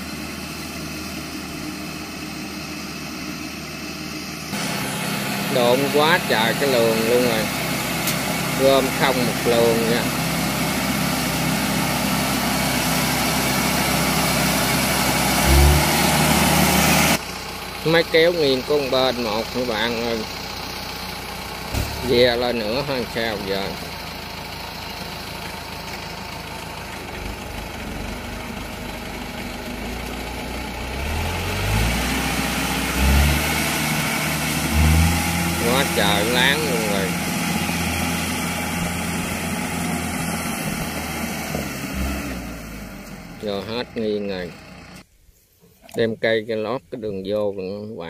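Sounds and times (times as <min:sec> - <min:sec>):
harvester engine running: 0:00.0 - 0:45.1
loud low thump: 0:21.7 - 0:22.3.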